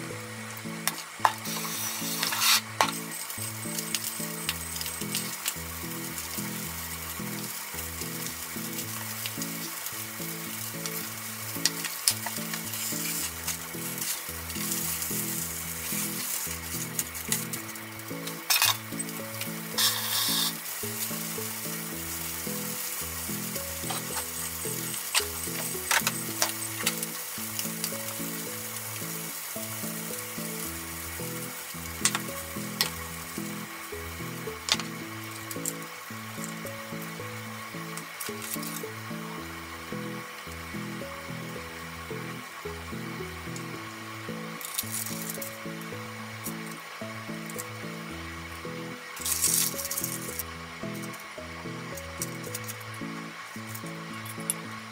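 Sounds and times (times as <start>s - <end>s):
background music: 0.0s - 54.9s
fish sizzling in a frying pan: 0.0s - 54.9s.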